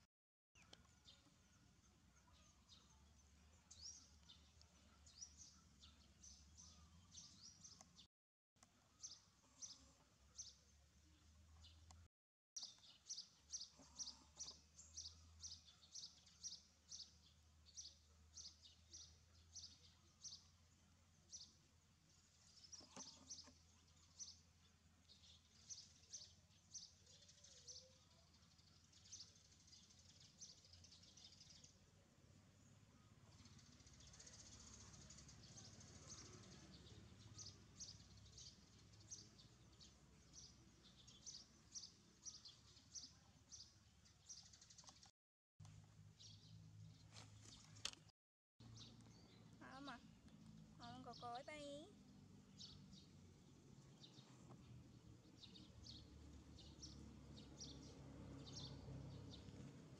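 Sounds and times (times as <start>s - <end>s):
faint high bird chirps: 0.6s - 21.6s, 22.2s - 31.8s, 48.6s - 53.2s.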